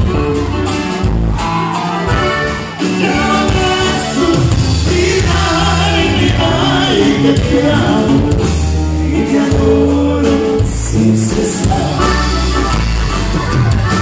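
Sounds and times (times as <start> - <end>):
guitar: 0.0 - 14.0
steady bass line: 0.0 - 14.0
man singing lead: 2.8 - 12.8
button accordion: 12.0 - 14.0.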